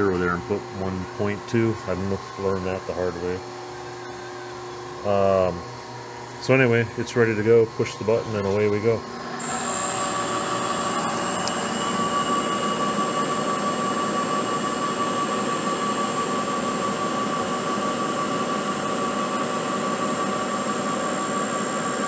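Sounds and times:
milling machine whining: 0.0 - 22.0.

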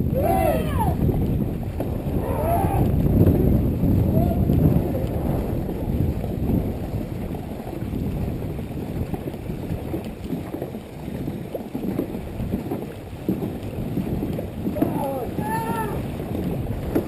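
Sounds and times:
paddles splashing water: 0.0 - 17.0
wind on microphone: 0.0 - 17.0.

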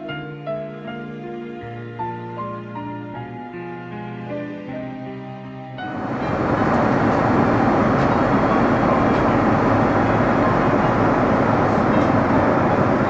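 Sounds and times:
background music: 0.0 - 13.0
airliner cabin noise: 5.8 - 13.0.

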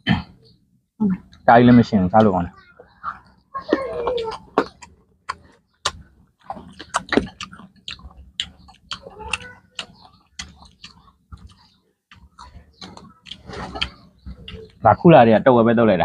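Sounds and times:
crunchy chewing: 3.0 - 14.8.

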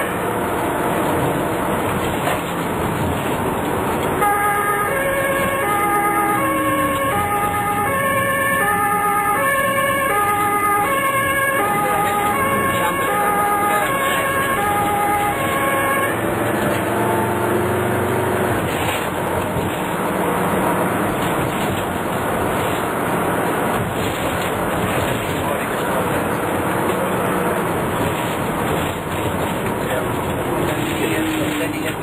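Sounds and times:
engine and road noise: 0.0 - 32.0
two-tone emergency siren: 4.2 - 17.8.

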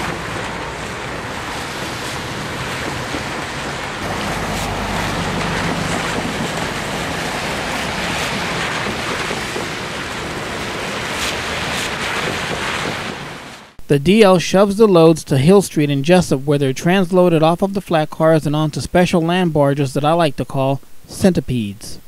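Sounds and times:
low engine hum: 0.0 - 9.1
tyres hissing on wet pavement: 0.0 - 13.8.

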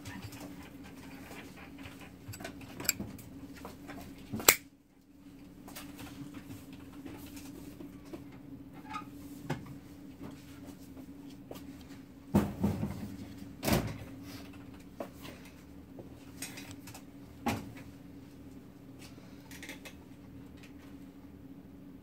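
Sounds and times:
steady low hum: 0.3 - 8.8
metal lighter case clicks and knocks: 2.3 - 3.0.

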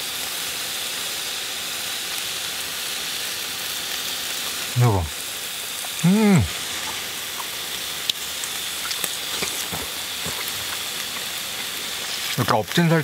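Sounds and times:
beef sizzling on a grill: 0.0 - 13.0
fat popping: 5.8 - 12.4
person humming with enjoyment: 6.0 - 6.6.

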